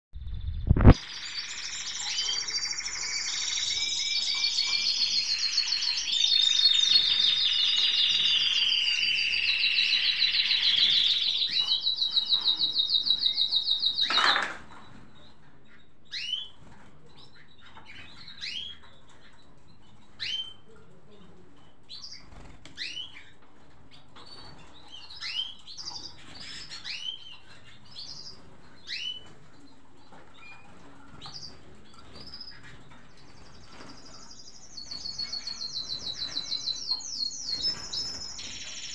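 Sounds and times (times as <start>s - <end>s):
birds trilling song: 0.2s - 20.7s, 21.6s - 38.9s.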